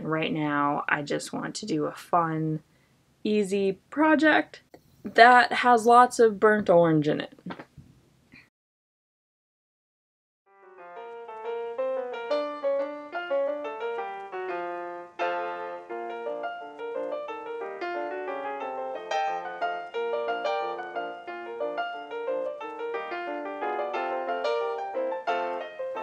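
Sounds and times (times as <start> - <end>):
quick piano music: 10.5 - 26.0.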